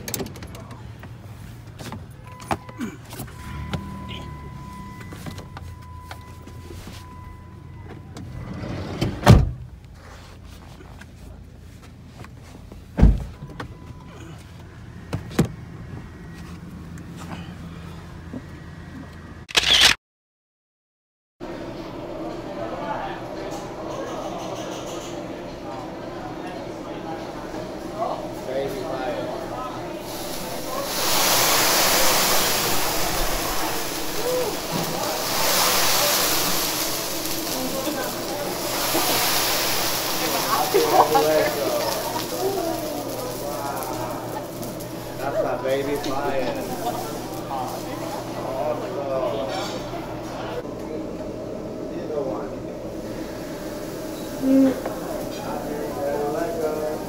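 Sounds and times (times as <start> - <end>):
vehicle interior hum: 0.0 - 8.5
griddle sizzling hiss: 28.0 - 49.6, 52.8 - 57.0.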